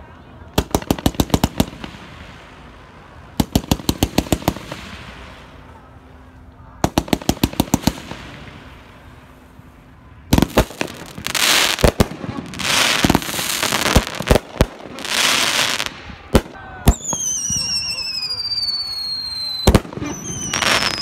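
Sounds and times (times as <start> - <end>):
fireworks crackling: 0.0 - 21.0
fireworks popping: 0.5 - 2.2, 3.4 - 5.5, 6.8 - 8.6, 10.3 - 21.0
fireworks bangs: 0.5 - 2.7, 3.3 - 5.8, 6.8 - 9.4, 10.3 - 21.0.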